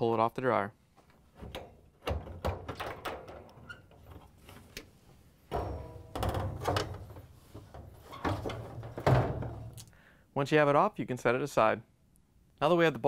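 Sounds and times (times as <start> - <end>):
metal panel knocks and rattles: 1.4 - 3.5, 5.5 - 9.8.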